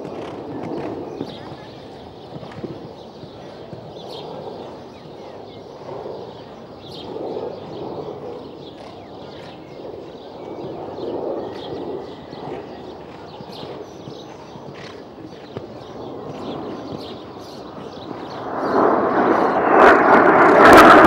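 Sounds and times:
horse hoofbeats on sand: 0:00.0 - 0:06.4, 0:11.0 - 0:18.8
birds chirping: 0:00.0 - 0:20.9
steady outdoor rush: 0:00.0 - 0:21.0.

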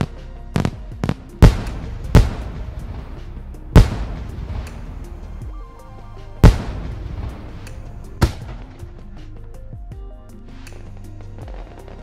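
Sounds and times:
firework bangs with echo: 0:00.0 - 0:05.3, 0:06.4 - 0:08.9
music with held notes: 0:00.0 - 0:12.0.

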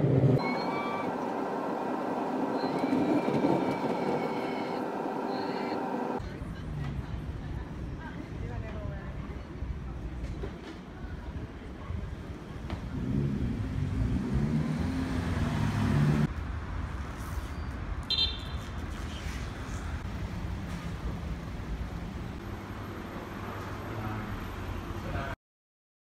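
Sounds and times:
low traffic rumble: 0:00.0 - 0:25.4
high-pitched beep: 0:00.4 - 0:01.2
passing vehicle engine: 0:12.8 - 0:16.3.

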